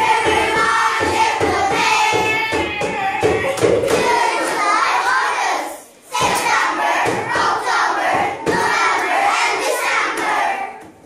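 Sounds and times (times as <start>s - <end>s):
children shouting in unison: 1.6s - 7.0s.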